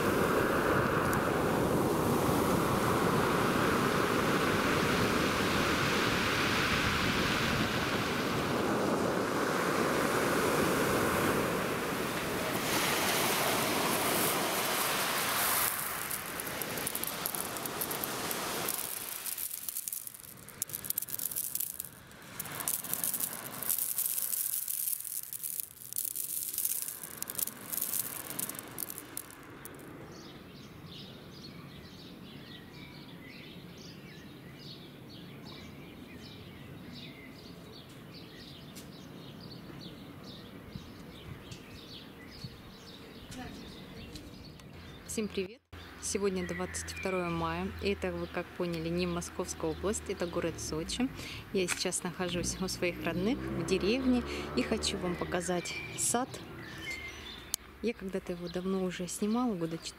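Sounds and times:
surf washing over pebbles: 0.0s - 30.0s
birds chirping: 13.5s - 59.9s.

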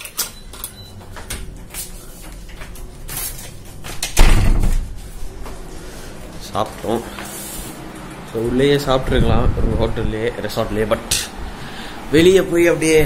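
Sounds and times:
heavy door thud: 3.8s - 5.0s.

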